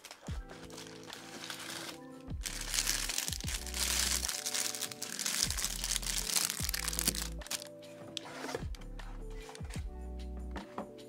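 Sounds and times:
plastic bag crinkling: 0.0s - 7.7s
background music with deep bass: 0.0s - 11.0s.

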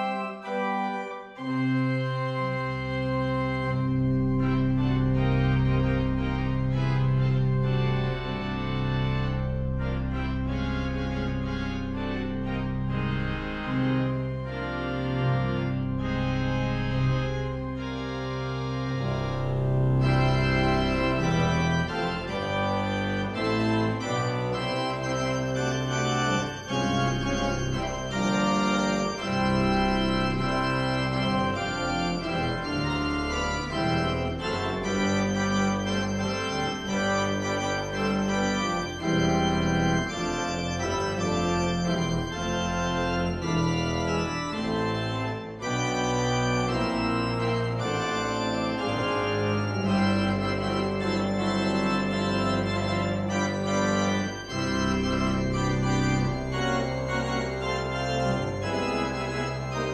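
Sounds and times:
church organ chords: 0.0s - 59.9s.

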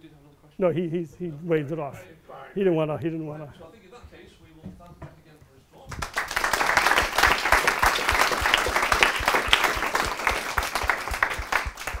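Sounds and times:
audience applause: 5.9s - 12.0s.

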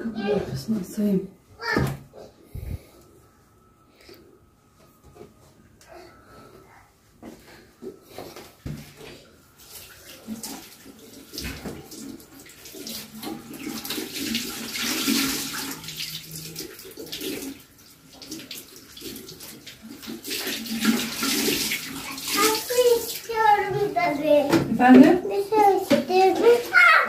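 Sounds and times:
hand washing splashes: 8.2s - 27.0s
tap water running into sink: 9.6s - 27.0s.

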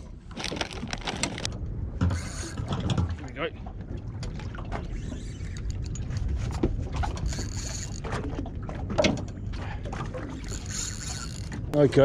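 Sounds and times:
water slapping against boat hull: 0.3s - 5.0s, 6.2s - 11.8s
fishing reel clicks and knocks: 2.1s - 2.6s, 7.2s - 8.0s, 10.4s - 11.6s.

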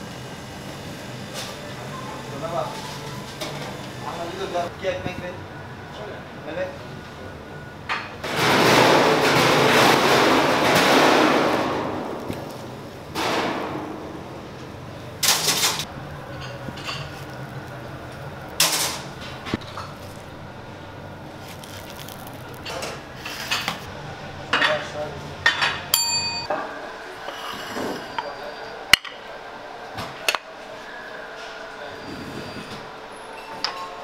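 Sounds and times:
loud rushing noise: 8.3s - 16.1s
dishes and utensils clattering: 15.2s - 17.5s.

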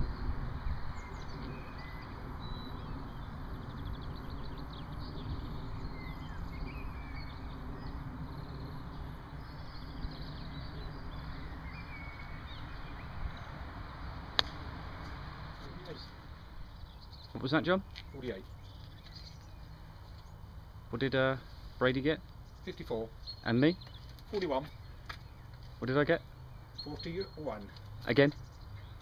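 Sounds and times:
wind rumble on microphone: 0.0s - 20.3s
birds chirping: 0.0s - 29.0s.

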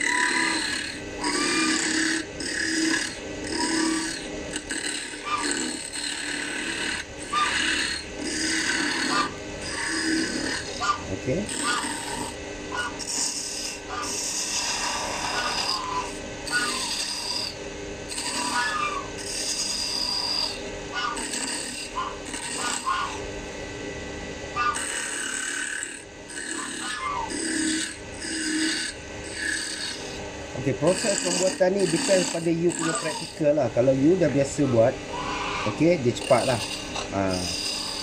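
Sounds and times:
chisel scraping spinning wood: 0.0s - 23.2s, 24.7s - 38.0s
wood lathe humming: 0.0s - 23.7s, 24.5s - 38.0s
goose honking: 34.6s - 35.8s.

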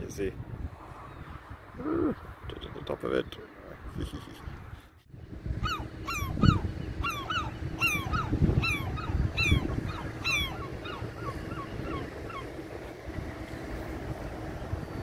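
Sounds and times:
wind buffeting microphone: 0.0s - 15.0s
gulls calling: 5.5s - 15.0s.

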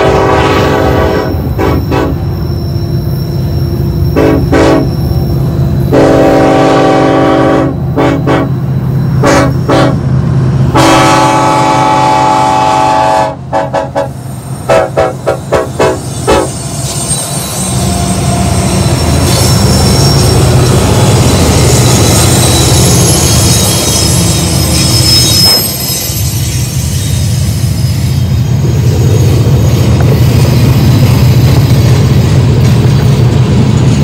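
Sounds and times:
locomotive horn toots: 0.0s - 2.3s, 4.1s - 5.0s, 5.9s - 10.1s, 10.7s - 16.6s
diesel locomotive engines rumbling: 0.0s - 34.0s
train wheel squeal: 0.1s - 11.4s, 14.1s - 34.0s.

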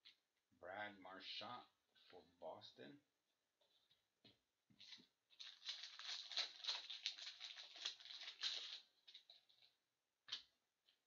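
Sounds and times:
foil wrapper crinkling and tearing: 4.8s - 9.6s.

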